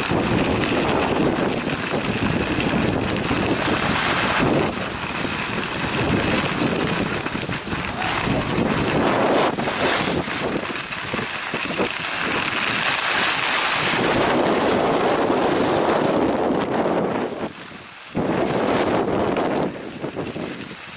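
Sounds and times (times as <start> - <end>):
wind buffeting microphone: 0.0 - 20.9
skis hissing on snow: 9.6 - 10.2.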